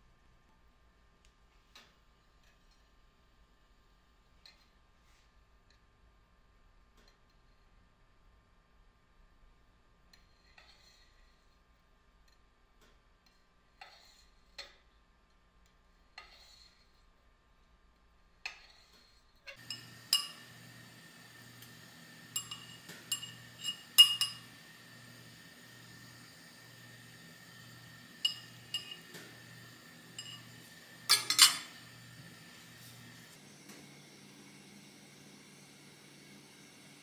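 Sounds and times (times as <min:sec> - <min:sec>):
metal utensils and dishes clinking: 0:18.7 - 0:20.5, 0:22.3 - 0:24.5, 0:28.2 - 0:29.2, 0:30.1 - 0:31.8
steady low hum: 0:19.2 - 0:37.0.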